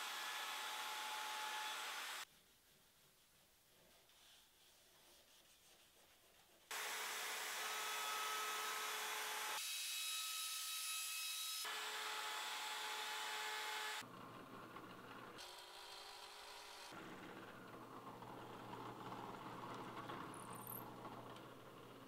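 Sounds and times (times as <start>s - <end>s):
wood router whining and cutting: 0.0s - 2.2s, 6.7s - 14.0s.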